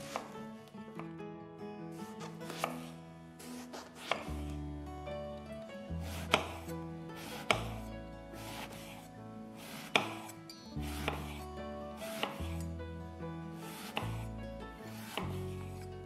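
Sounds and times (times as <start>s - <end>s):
knife chopping on a cutting board: 0.0s - 0.4s, 2.2s - 2.9s, 3.5s - 4.5s, 6.0s - 11.4s, 12.0s - 12.7s, 13.6s - 15.9s
soft background music: 0.0s - 16.0s.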